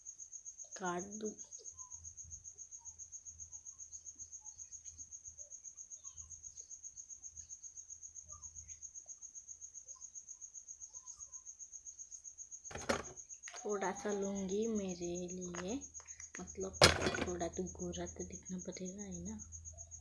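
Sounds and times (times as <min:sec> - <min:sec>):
cricket chirping: 0:00.0 - 0:20.0
faint bird chirps: 0:00.6 - 0:16.7.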